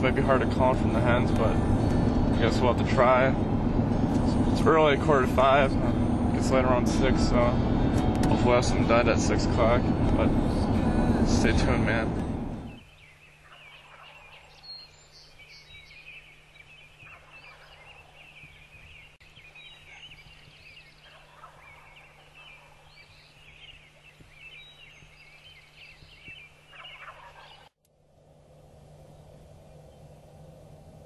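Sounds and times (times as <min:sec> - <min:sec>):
distant turkeys gobbling: 0:13.3 - 0:14.7, 0:16.5 - 0:18.6, 0:19.4 - 0:27.7.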